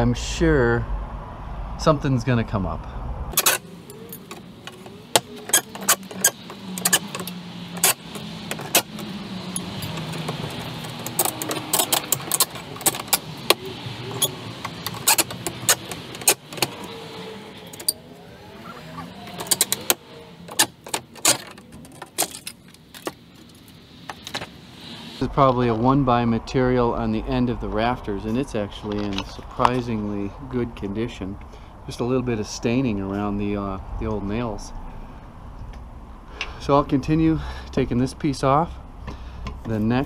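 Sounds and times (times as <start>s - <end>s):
low engine hum: 0.0s - 40.0s
hand tools clinking and knocking: 3.4s - 17.0s, 19.2s - 24.5s.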